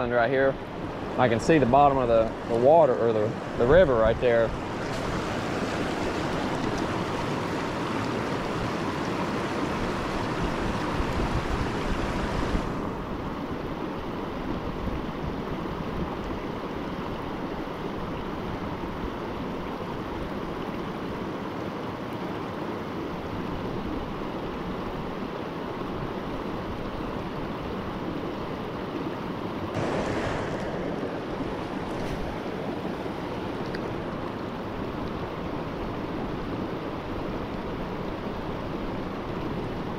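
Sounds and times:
river rapids rushing: 0.0s - 13.3s, 29.7s - 39.9s
wind rumbling on microphone: 0.0s - 20.4s, 29.7s - 39.9s.

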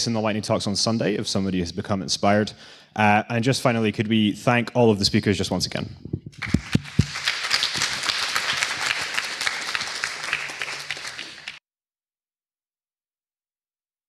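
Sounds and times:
audience applauding: 6.4s - 11.6s.

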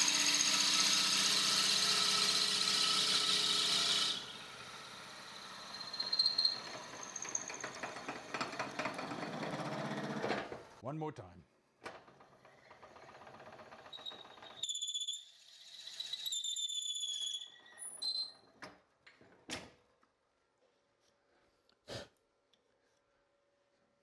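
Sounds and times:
drill bit cutting wood: 0.0s - 7.8s
high-pitched squeal: 5.1s - 7.8s, 14.0s - 18.4s.

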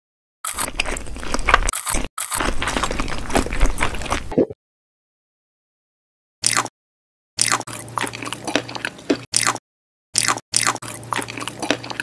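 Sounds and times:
biting and chewing: 0.4s - 4.4s, 6.4s - 6.7s, 7.4s - 9.6s, 10.2s - 12.0s.

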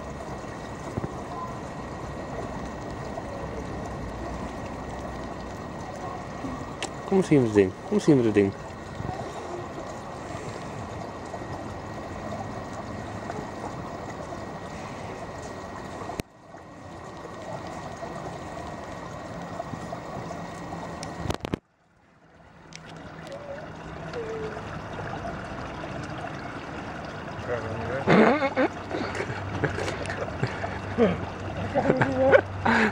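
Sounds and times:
running water rushing: 0.0s - 32.9s.

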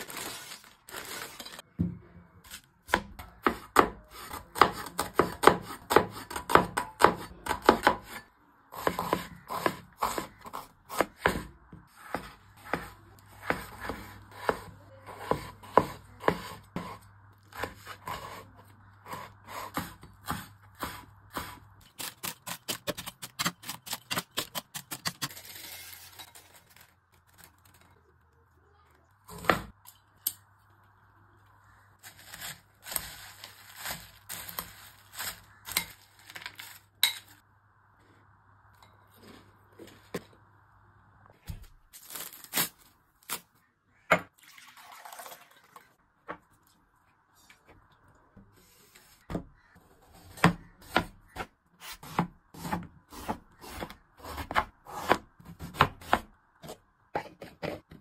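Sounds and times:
snack packets crinkling: 0.0s - 1.7s.

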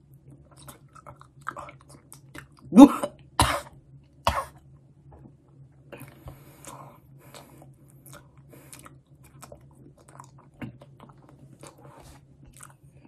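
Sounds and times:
wet mouth chewing sounds: 0.2s - 2.7s, 5.2s - 12.9s.

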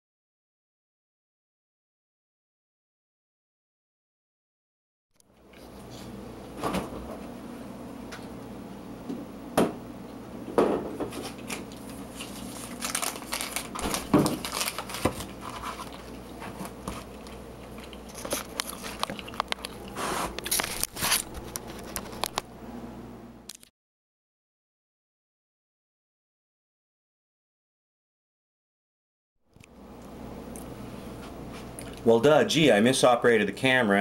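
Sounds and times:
low steady hum: 5.2s - 23.7s, 29.5s - 34.0s
wrapper crinkling: 11.2s - 17.1s, 17.8s - 22.4s
bread crust crackling: 11.2s - 22.3s.

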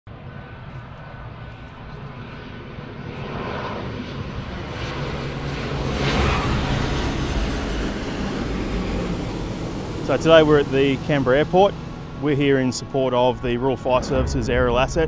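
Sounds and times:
jet engines of landing plane: 0.1s - 15.0s.

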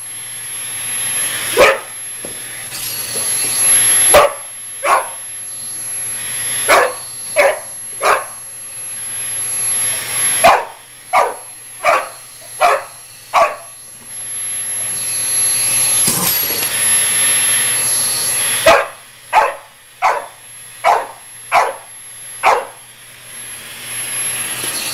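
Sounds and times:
vacuum cleaner motor whine: 0.0s - 24.9s
puppy barking: 1.6s - 1.9s, 4.1s - 5.2s, 6.7s - 8.4s, 10.4s - 13.7s, 18.6s - 22.8s.

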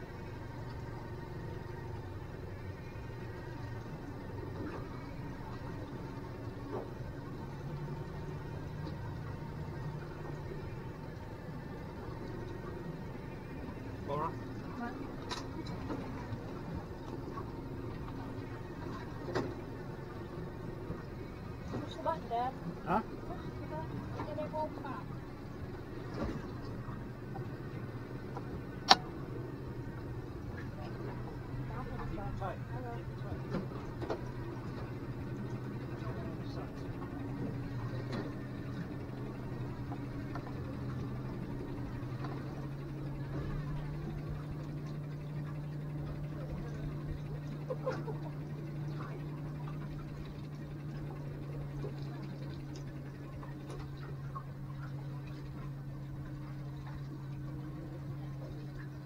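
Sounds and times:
outboard motor running: 0.0s - 59.0s
water against hull: 0.0s - 59.0s
sharp click: 28.8s - 29.1s.

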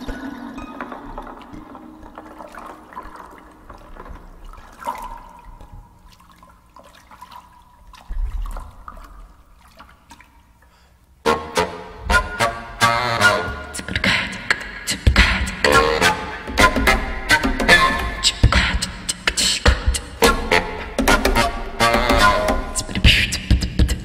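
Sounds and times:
water trickling and dripping: 0.0s - 11.2s
beatbox hits: 11.6s - 24.0s.

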